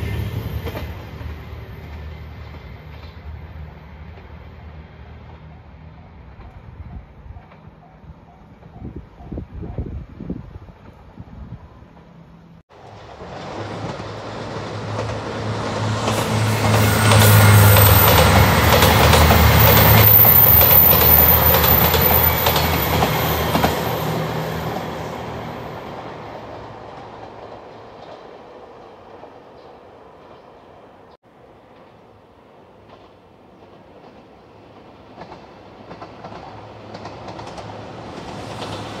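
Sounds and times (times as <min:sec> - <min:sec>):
diesel train engines: 0:00.0 - 0:39.0
wheels clicking over rail joints: 0:12.7 - 0:24.1, 0:32.8 - 0:39.0.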